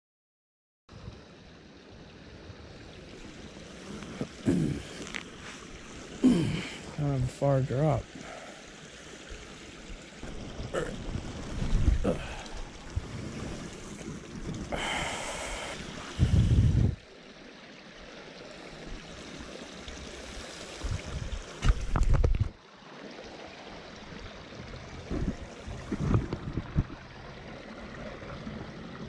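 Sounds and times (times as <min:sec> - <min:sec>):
creek water rushing: 0:01.0 - 0:29.0
low rumbles on microphone: 0:16.2 - 0:17.0, 0:24.6 - 0:27.2.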